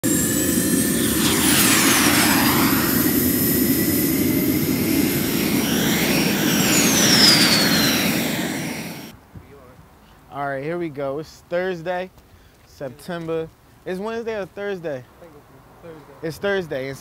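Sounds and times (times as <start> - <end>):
high falling whooshes: 0.0 - 9.1.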